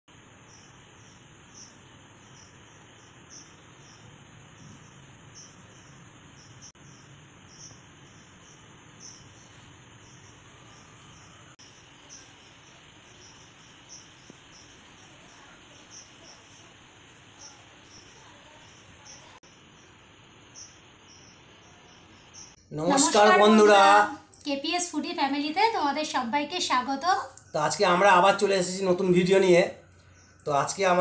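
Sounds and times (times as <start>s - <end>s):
cricket chirping: 0.1s - 31.0s
faint steady hiss: 0.1s - 31.0s.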